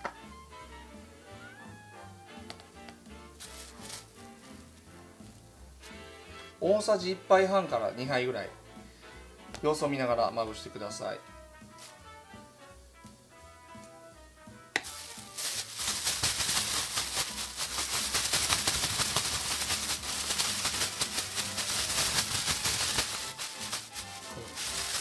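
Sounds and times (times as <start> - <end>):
quiet background music: 0.0 - 25.0
plastic bag rattling and crinkling: 3.4 - 4.2, 14.8 - 25.0.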